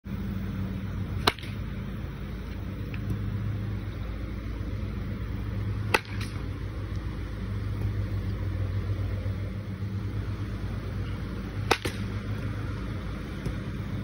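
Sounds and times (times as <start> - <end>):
steady low hum: 0.0 - 14.0
baseball bat cracking ball: 1.1 - 3.2, 5.7 - 7.1, 11.0 - 13.8.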